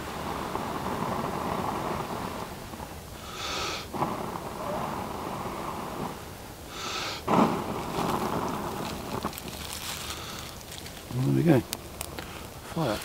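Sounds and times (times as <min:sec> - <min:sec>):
sharp breath drawn in: 0:03.2 - 0:03.9, 0:06.7 - 0:07.3
person blowing on tinder: 0:03.2 - 0:10.8.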